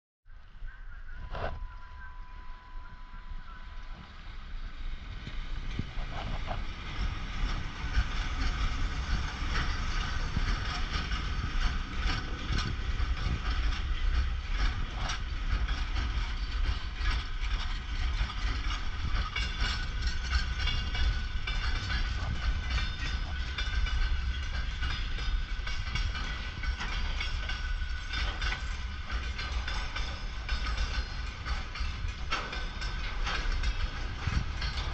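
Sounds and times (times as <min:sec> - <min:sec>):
freight train heavy rumble: 0:00.2 - 0:34.9
wheels clacking over rail joints: 0:03.0 - 0:34.9.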